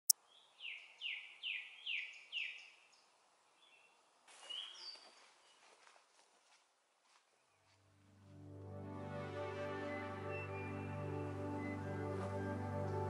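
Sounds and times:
bird whistling downward note: 9.8 - 12.8.

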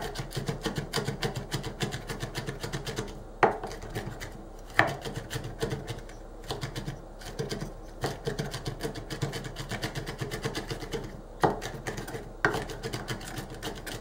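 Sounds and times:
knife tapping on chopping bowl: 4.8 - 5.2.

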